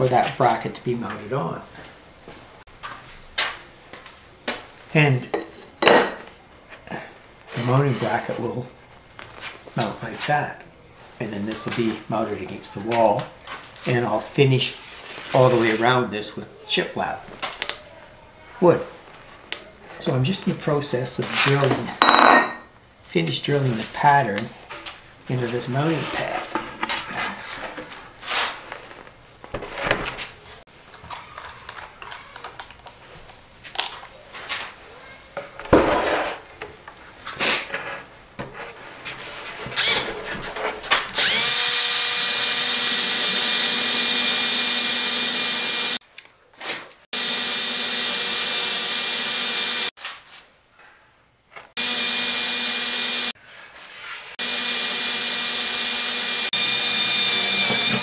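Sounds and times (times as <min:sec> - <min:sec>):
cordless drill boring through wood: 0:39.8 - 0:40.1, 0:41.1 - 0:46.0, 0:47.2 - 0:49.9, 0:51.8 - 0:53.4, 0:54.4 - 0:58.0.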